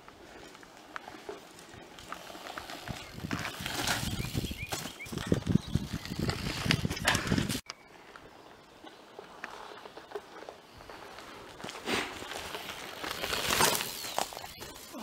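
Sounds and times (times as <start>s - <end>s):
tyres crunching on dirt and leaves: 9.0s - 15.0s.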